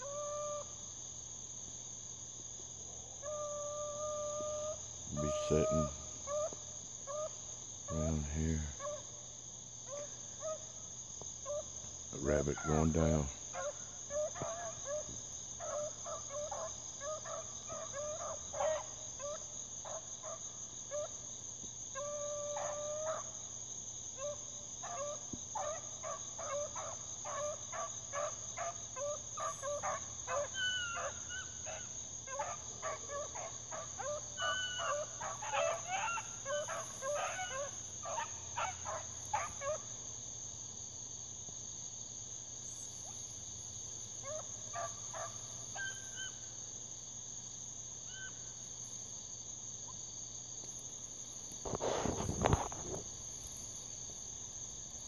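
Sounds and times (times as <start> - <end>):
insects buzzing: 0.0 - 55.0
hounds baying and yelping: 3.2 - 9.2, 11.4 - 11.8, 12.4 - 21.2, 21.9 - 23.5, 24.1 - 40.0, 44.2 - 46.4.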